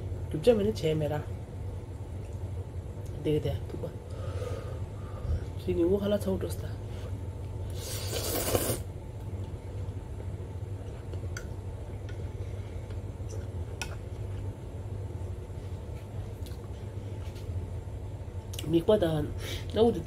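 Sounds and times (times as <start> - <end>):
steady low hum: 0.0 - 20.0
person slurping noodles: 7.7 - 8.9.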